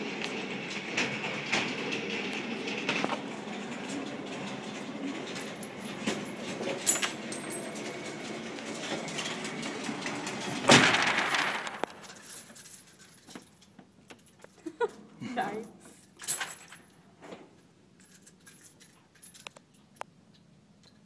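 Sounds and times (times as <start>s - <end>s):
motorized target carrier running: 0.0s - 12.2s
loud bang: 10.6s - 12.1s.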